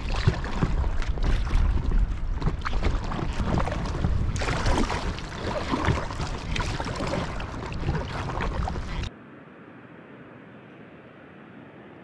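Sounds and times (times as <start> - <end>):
paddle splashing water: 0.0 - 9.1
wind rumble on microphone: 0.0 - 12.0.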